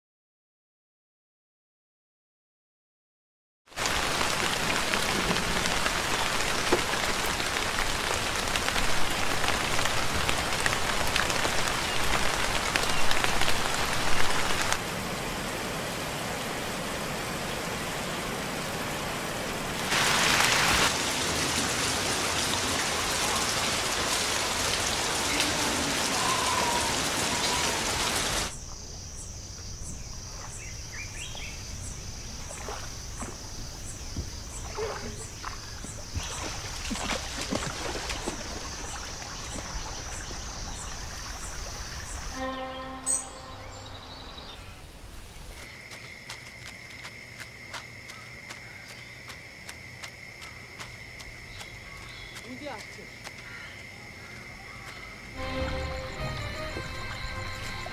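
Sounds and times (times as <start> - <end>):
heavy rain falling: 3.7 - 28.5, 55.4 - 57.9.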